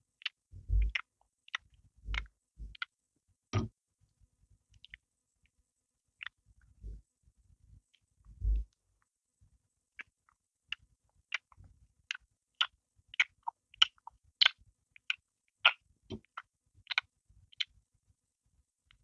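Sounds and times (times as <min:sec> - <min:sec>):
person chewing bread: 0:00.2 - 0:02.9, 0:10.0 - 0:17.6.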